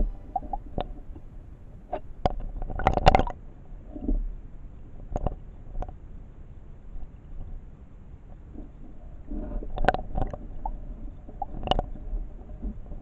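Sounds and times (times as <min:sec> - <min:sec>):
underwater stream gurgling: 0:00.0 - 0:04.3.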